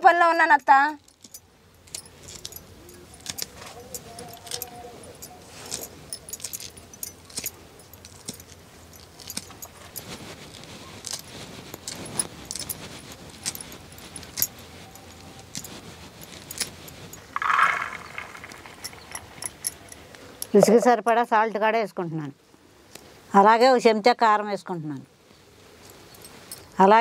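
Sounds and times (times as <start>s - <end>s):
kernels clicking into a clay bowl: 15.5s - 21.0s
kernels poured into a pot: 17.3s - 19.4s.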